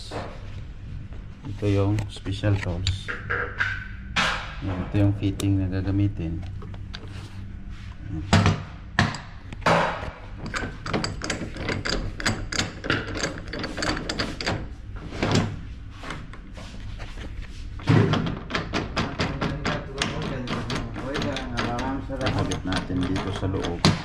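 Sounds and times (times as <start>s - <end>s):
steady low hum: 0.0s - 24.0s
metal fittings and tools clinking: 10.4s - 14.6s.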